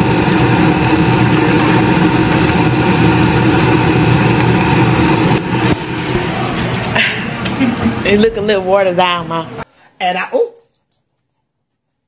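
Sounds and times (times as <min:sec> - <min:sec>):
loud motor hum: 0:00.0 - 0:09.4.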